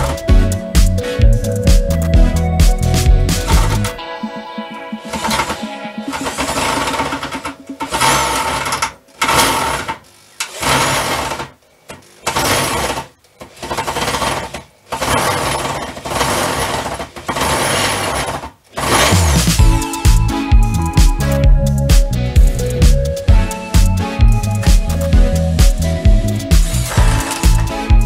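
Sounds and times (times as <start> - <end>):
power drill whining into wood: 5.1 - 11.6, 12.2 - 19.6, 26.6 - 27.8.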